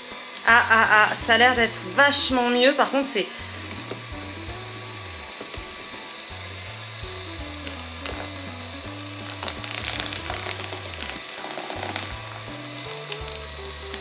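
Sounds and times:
background music with bass line: 0:00.0 - 0:02.6, 0:03.4 - 0:14.0
electric hand mixer labouring: 0:00.0 - 0:14.0.

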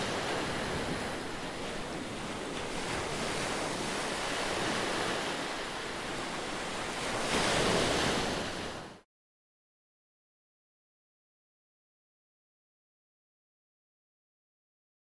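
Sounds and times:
waves washing up pebble beach: 0:00.0 - 0:08.8.

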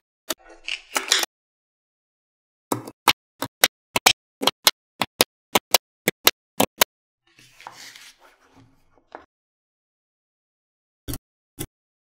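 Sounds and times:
rustling scrape: 0:07.4 - 0:08.8.

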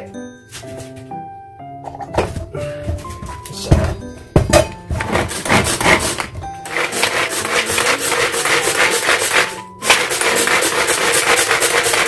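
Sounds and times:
food chopper blades rattling: 0:04.9 - 0:12.0.

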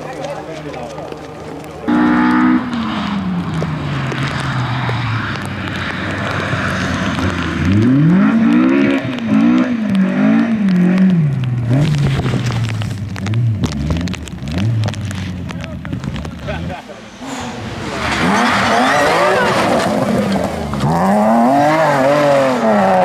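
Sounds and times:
rally car engine revving: 0:00.0 - 0:23.0.

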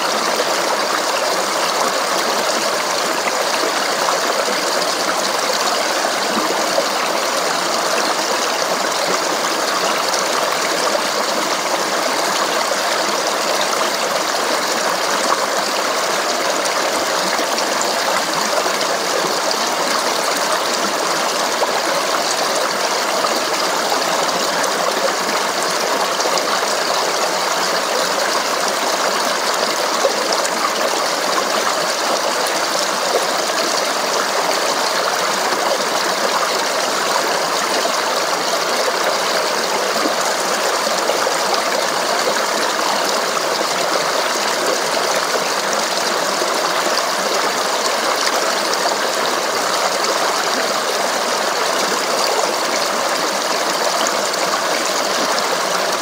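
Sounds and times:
water rushing over rocks: 0:00.0 - 0:56.0.

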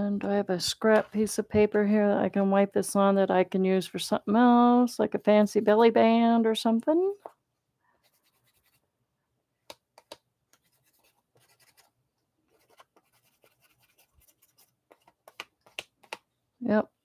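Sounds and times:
palette knife scraping paper: 0:10.6 - 0:15.8.

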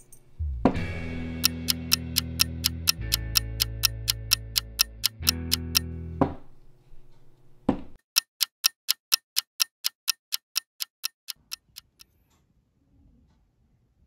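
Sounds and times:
clock ticking: 0:01.3 - 0:05.9, 0:08.0 - 0:12.0.

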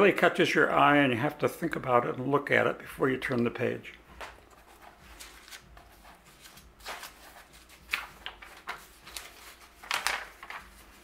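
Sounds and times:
magazine pages turning: 0:04.2 - 0:11.0.

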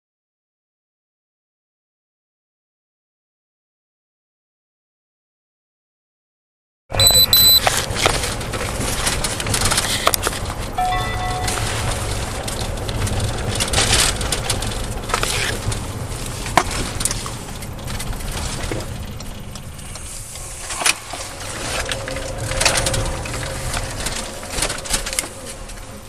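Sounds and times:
road and engine rumble: 0:06.9 - 0:26.0.

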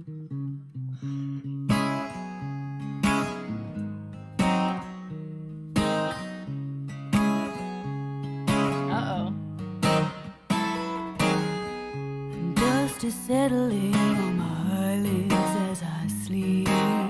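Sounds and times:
acoustic guitar strummed chords: 0:00.0 - 0:17.0.

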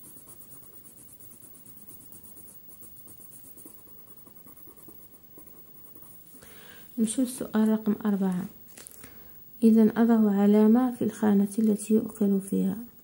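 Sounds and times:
pencil scratching on paper: 0:00.0 - 0:06.4.

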